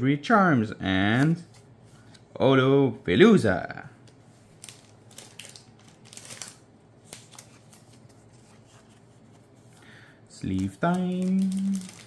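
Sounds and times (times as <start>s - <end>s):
trading cards tapping and rustling: 10.4s - 12.0s.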